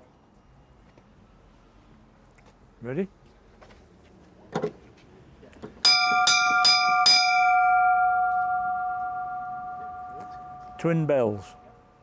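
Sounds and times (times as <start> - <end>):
fire bell ringing: 5.9 - 12.0.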